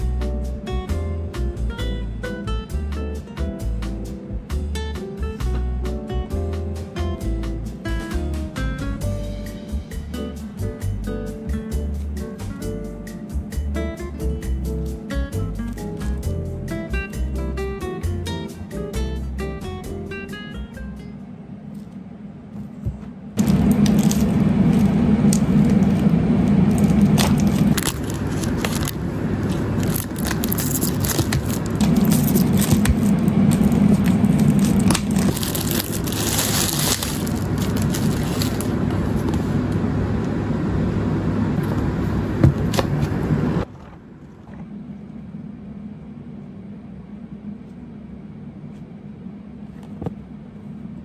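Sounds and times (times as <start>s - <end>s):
low steady hum: 4.3s - 51.0s
packaging crinkling and scraping: 23.4s - 39.6s.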